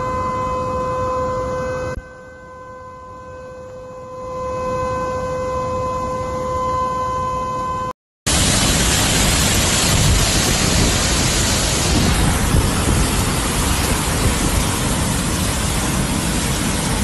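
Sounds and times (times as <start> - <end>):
floodwater rushing: 8.3 - 17.0.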